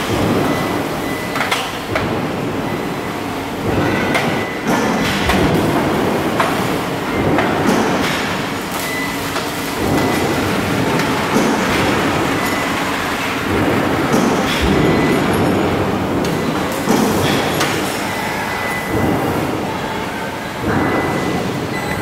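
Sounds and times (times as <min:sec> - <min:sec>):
factory machinery noise: 0:00.0 - 0:22.0.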